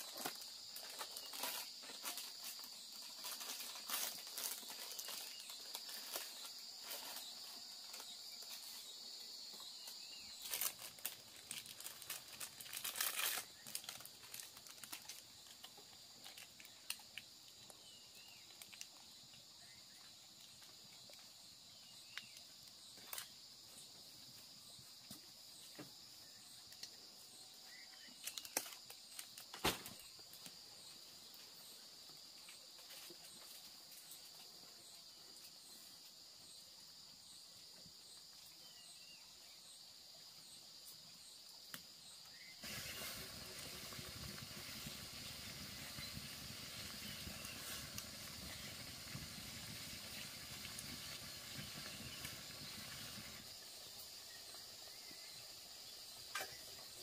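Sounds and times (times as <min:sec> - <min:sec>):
insects droning: 0:00.0 - 0:57.0
material rustling and crinkling: 0:10.4 - 0:15.6.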